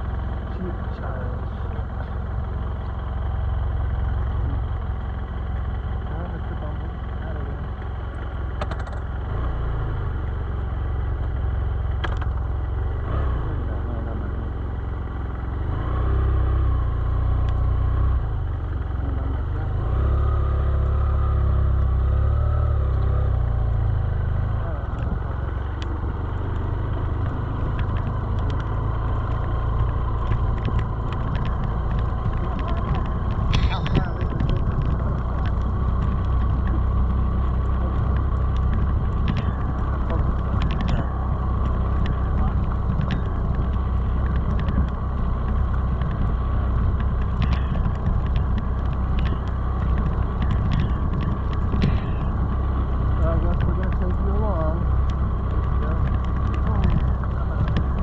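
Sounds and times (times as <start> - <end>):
motorcycle engine running: 0.0 - 58.0
wind rumble on microphone: 22.8 - 58.0.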